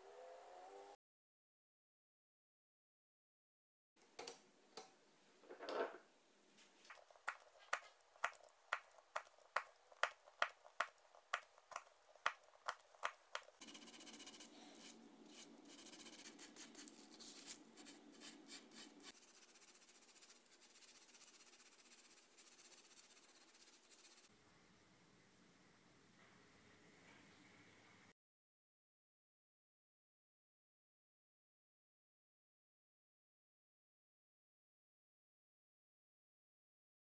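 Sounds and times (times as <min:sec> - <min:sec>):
sandpaper rasping on cue tip: 0:12.7 - 0:24.3.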